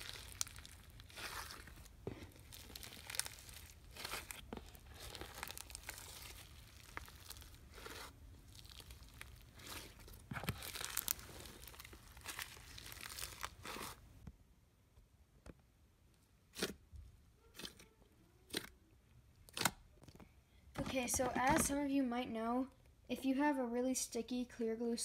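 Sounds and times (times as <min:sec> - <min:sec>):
slime squishing and crackling: 0:00.0 - 0:14.2.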